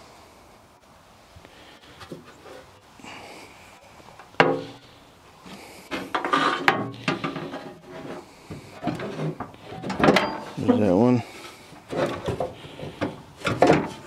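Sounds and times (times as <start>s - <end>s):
sheet metal scraping and knocking: 5.9s - 10.9s, 11.9s - 14.0s.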